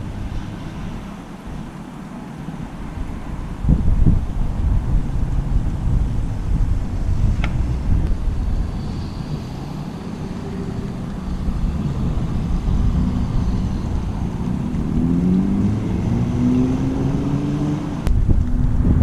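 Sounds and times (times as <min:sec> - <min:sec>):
wind rumbling on microphone: 0:00.0 - 0:19.0
vehicle engine pulling away: 0:03.7 - 0:19.0.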